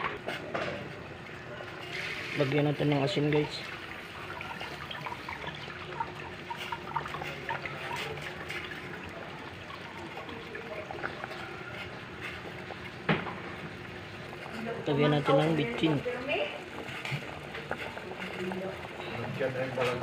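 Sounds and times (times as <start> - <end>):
soup bubbling and popping: 0.9 - 20.0.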